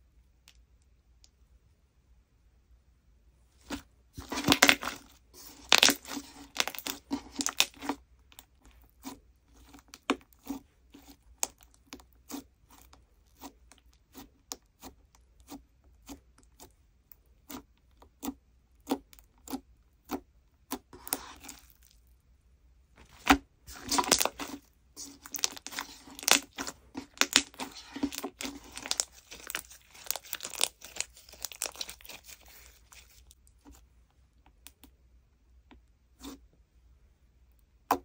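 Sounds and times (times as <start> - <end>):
sticky slime crackling: 3.7 - 16.7, 23.0 - 33.8.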